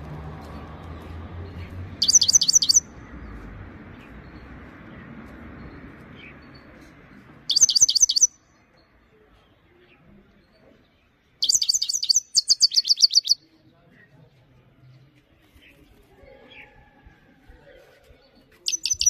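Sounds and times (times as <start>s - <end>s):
finch twittering: 2.0s - 2.9s, 7.5s - 8.4s, 11.4s - 13.4s, 18.7s - 19.0s.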